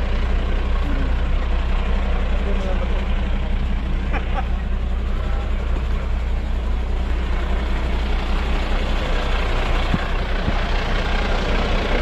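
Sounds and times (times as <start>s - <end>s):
fire engine idling: 0.0s - 12.0s.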